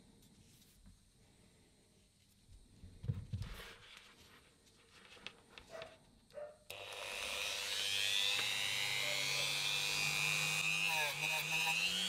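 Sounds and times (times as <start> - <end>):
rotary tool high whine: 6.7 - 12.0.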